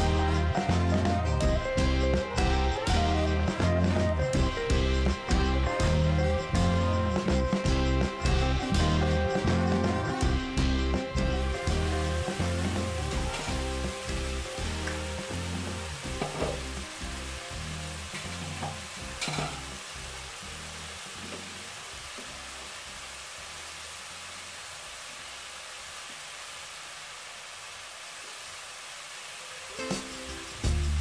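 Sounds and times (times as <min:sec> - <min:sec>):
background music: 0:00.0 - 0:21.6, 0:29.7 - 0:31.0
chicken sizzling in oil: 0:00.0 - 0:31.0.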